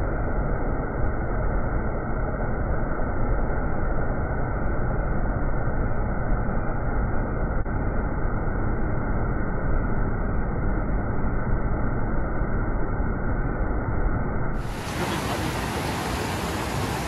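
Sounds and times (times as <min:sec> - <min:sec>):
whitewater rushing over rocks: 0:14.6 - 0:17.0.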